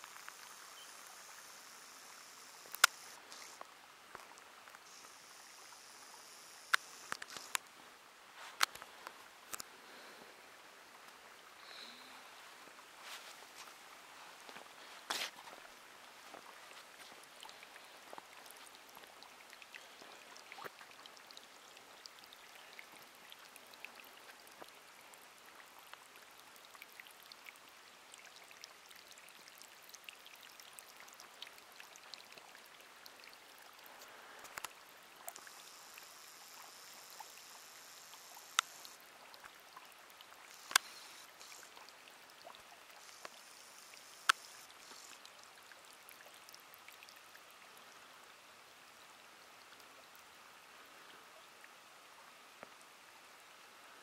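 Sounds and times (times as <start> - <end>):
trickle of spring water: 0.0 - 54.0
sharp clicks: 2.6 - 3.6.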